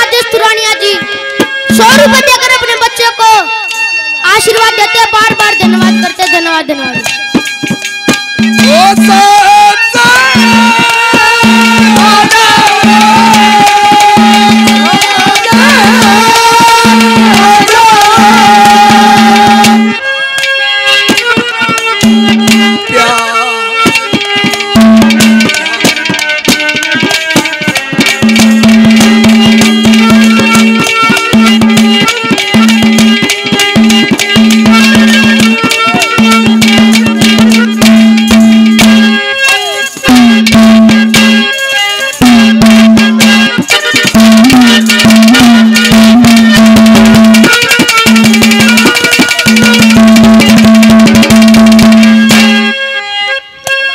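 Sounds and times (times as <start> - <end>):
hand drums playing: 0.0 - 3.5, 4.2 - 52.8.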